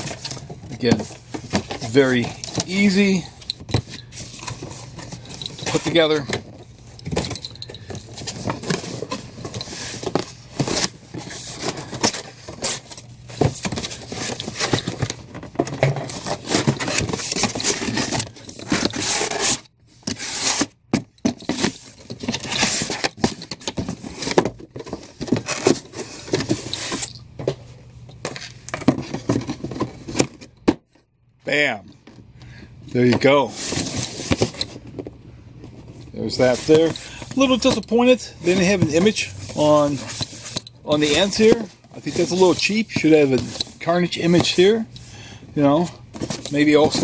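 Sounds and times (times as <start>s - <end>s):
cardboard scraping and creasing: 0.0s - 3.2s, 8.2s - 20.7s, 36.2s - 44.8s.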